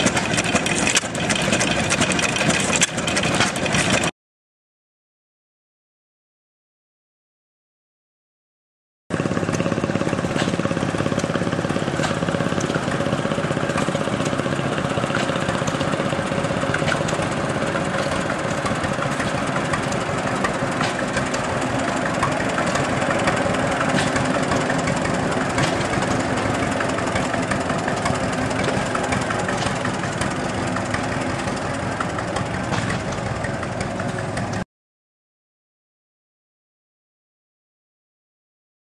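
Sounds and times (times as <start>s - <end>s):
tractor engine running: 0.0s - 4.1s, 9.1s - 34.6s.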